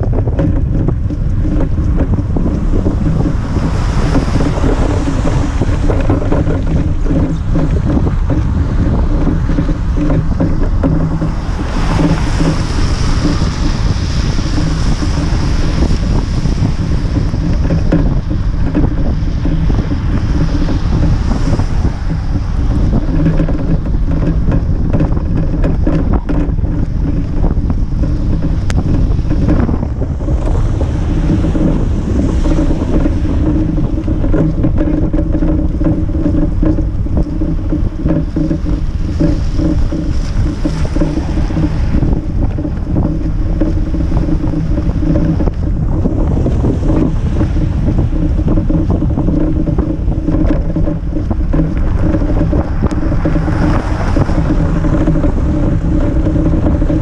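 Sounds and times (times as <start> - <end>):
tyres rumbling on slushy road: 0.0 - 57.0
wind buffeting microphone: 0.0 - 57.0.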